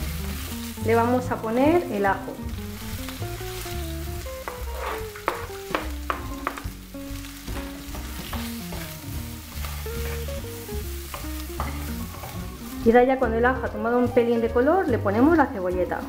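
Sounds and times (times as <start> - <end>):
background music melody: 0.0 - 16.0
vegetables sizzling in oil: 0.0 - 16.0
spatula knocking against pan: 4.4 - 6.7, 11.0 - 12.4.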